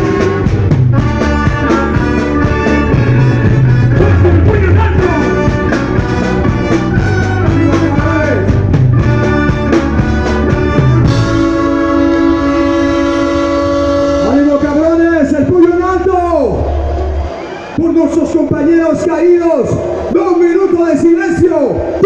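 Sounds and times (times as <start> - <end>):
driving drum beat: 0.0 - 16.2
live ska band playing: 0.0 - 22.0.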